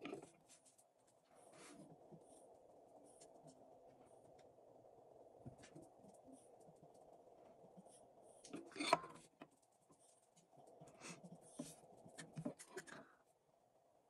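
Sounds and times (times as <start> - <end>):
steady low hum: 0.0 - 14.0
paintbrush scratching and dabbing: 5.5 - 13.0.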